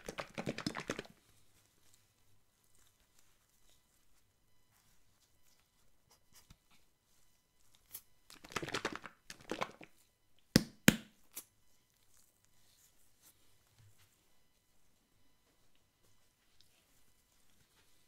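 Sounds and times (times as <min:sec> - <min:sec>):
squeeze bottle shaken: 0:00.0 - 0:01.2, 0:08.3 - 0:09.9.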